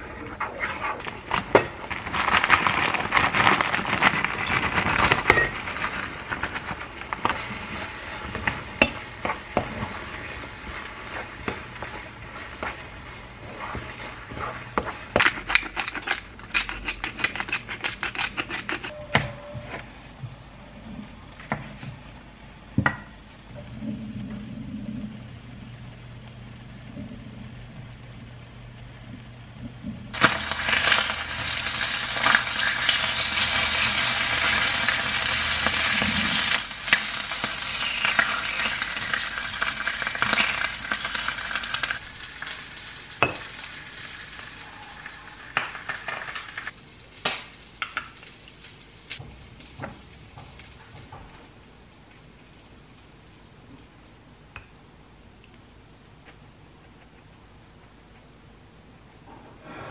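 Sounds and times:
food sizzling in frying pan: 0:01.0 - 0:16.4, 0:25.2 - 0:50.8.

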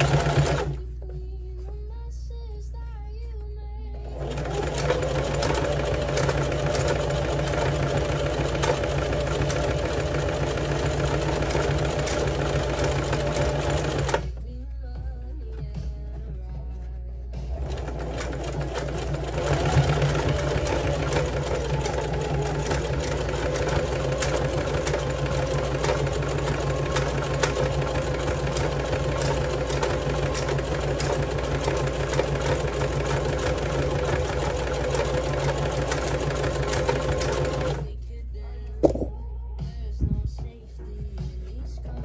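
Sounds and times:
sewing machine stitching: 0:00.0 - 0:00.8, 0:04.0 - 0:14.4, 0:17.5 - 0:37.9.

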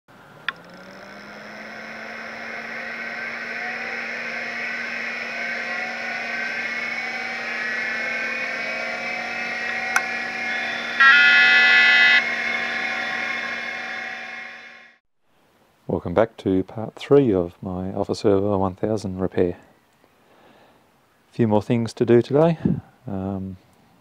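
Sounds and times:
motor hum and whine: 0:00.1 - 0:15.0
loud buzzing beep: 0:01.7 - 0:15.0.

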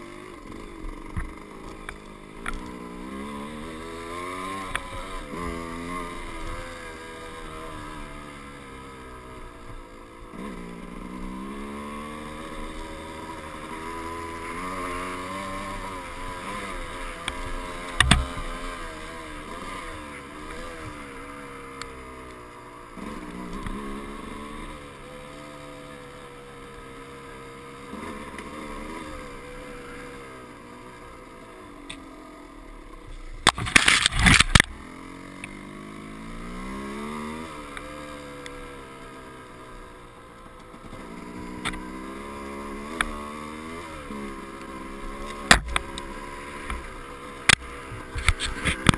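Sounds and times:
motorcycle engine revving: 0:00.0 - 0:48.9
sharp knocks: 0:18.0 - 0:18.3.

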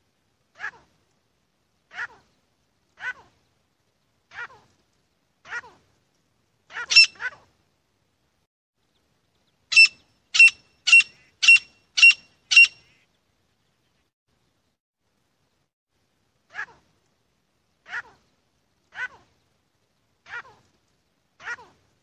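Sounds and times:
francolin calling: 0:06.8 - 0:07.3, 0:09.7 - 0:13.1.

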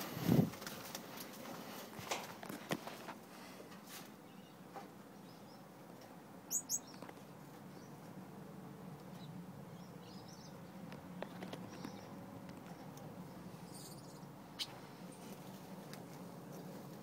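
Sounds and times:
finch calls: 0:06.5 - 0:07.1, 0:13.6 - 0:14.8.

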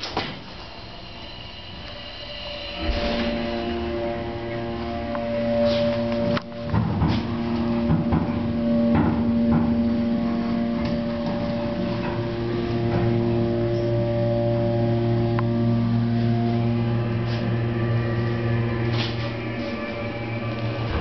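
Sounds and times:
elevator motor whine: 0:00.0 - 0:21.0
low rumble: 0:00.6 - 0:21.0
knocks and rattles from elevator car: 0:06.7 - 0:09.9.

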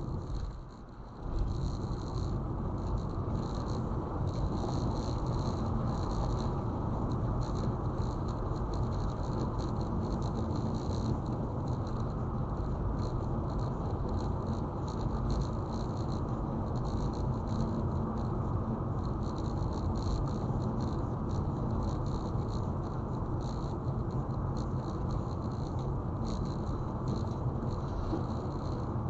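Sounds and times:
car road and engine noise: 0:00.0 - 0:29.0
light patter of small ticks: 0:00.0 - 0:29.0.

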